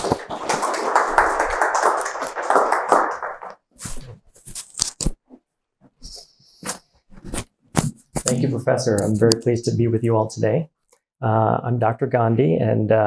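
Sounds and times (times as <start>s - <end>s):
audience applauding: 0.0s - 3.6s.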